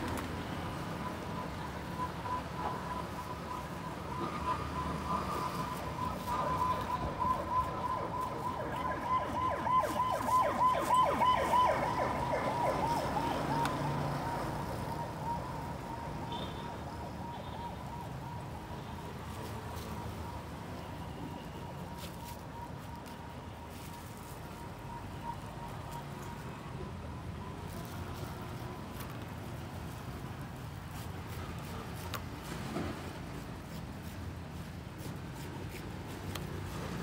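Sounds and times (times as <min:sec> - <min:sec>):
siren with rising sweep: 0:01.0 - 0:16.3.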